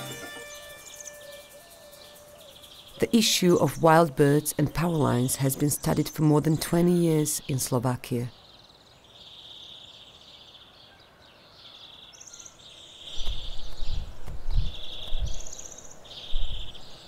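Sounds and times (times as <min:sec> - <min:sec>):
higher-pitched insect trill: 0:00.0 - 0:03.4
insect buzzy chirp: 0:00.0 - 0:03.8.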